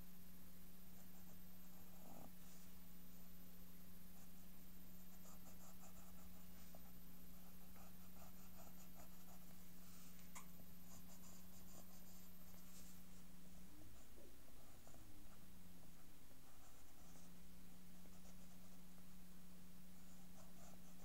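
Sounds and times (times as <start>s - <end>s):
steady low hum: 0.0s - 21.0s
pencil scratching on paper: 4.1s - 10.1s, 10.7s - 13.1s, 18.0s - 19.0s, 20.0s - 21.0s.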